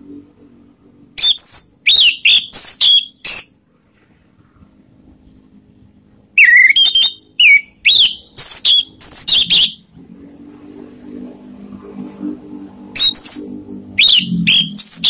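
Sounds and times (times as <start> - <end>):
low droning hum: 0.0 - 1.2, 9.8 - 15.0
bird singing whistled notes: 1.2 - 3.6, 6.4 - 9.8, 13.0 - 15.0.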